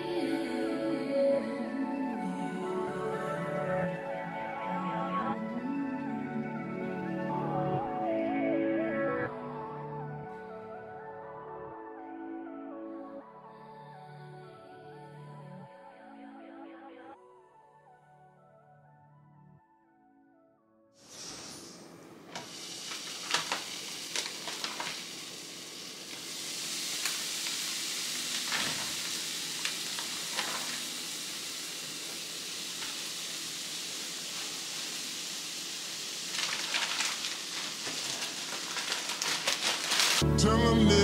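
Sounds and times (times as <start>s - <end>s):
crackling fat spatters: 22.4s - 31.3s, 34.2s - 40.2s
bacon sizzling in a frying pan: 22.4s - 40.2s.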